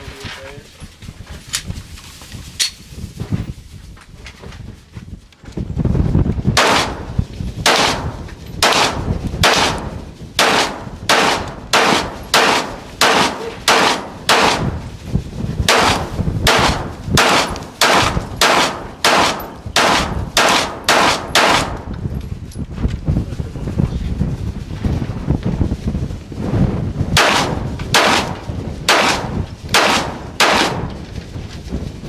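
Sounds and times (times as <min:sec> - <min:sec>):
pistol shots: 0:06.6 - 0:14.8, 0:15.6 - 0:21.9, 0:27.2 - 0:31.0.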